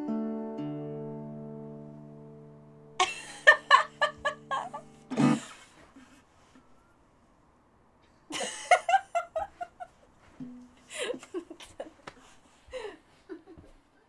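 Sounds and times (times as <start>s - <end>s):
woman laughing: 3.0s - 6.2s, 8.3s - 10.0s, 10.9s - 12.1s, 12.7s - 13.7s.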